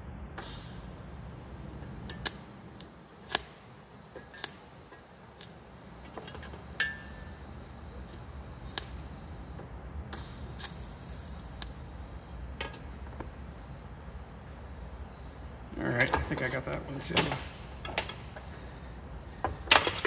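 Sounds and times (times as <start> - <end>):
high-pitched welding torch buzz: 4.2 - 7.0, 8.1 - 9.4, 10.4 - 11.8.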